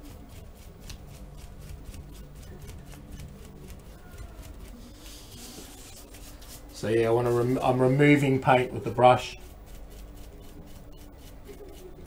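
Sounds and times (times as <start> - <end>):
dry brush scratching wet paint: 0.0 - 12.0.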